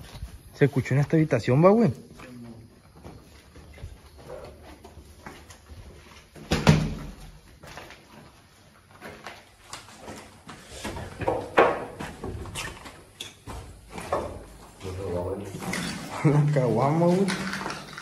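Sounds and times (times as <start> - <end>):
knocks and scuffs: 2.0 - 16.1
footsteps on rubble: 7.0 - 11.1.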